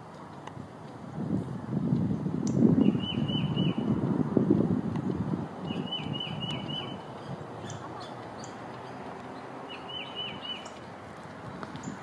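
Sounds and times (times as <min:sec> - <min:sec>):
small birds calling: 0:05.6 - 0:10.9.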